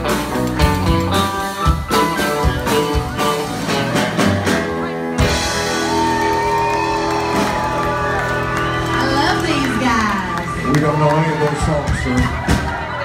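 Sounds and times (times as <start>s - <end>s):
guitar: 0.0s - 13.0s.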